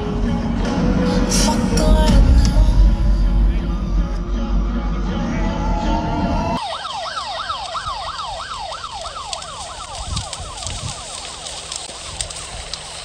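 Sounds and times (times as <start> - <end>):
heavy bass music: 0.0 - 6.6
siren sweeping up and down: 3.7 - 12.5
faint crackles: 6.6 - 13.0.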